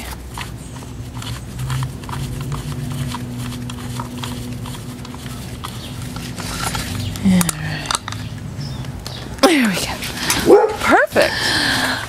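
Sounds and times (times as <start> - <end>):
low steady hum: 0.0 - 12.0
metal clicks and ticks: 1.2 - 10.5.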